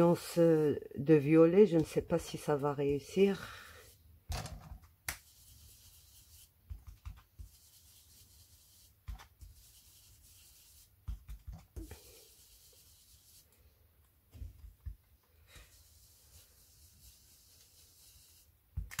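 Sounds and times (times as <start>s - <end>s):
brush dabbing on stencil: 5.2s - 13.8s, 15.4s - 18.7s.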